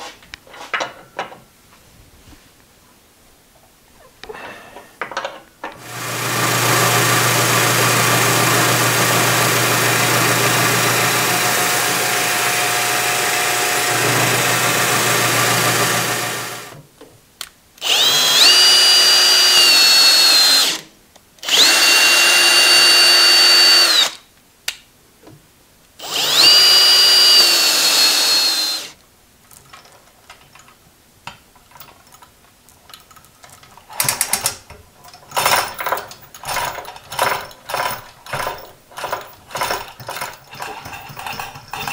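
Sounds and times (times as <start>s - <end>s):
cordless drill whining: 5.8s - 16.8s, 17.8s - 24.2s, 26.0s - 29.0s
drill press milling metal: 5.8s - 16.8s, 17.8s - 20.8s, 21.4s - 24.1s, 26.0s - 28.9s.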